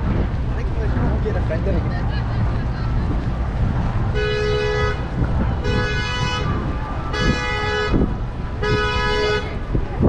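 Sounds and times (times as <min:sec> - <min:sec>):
low rumble of traffic: 0:00.0 - 0:10.0
car horn honking: 0:04.1 - 0:09.6.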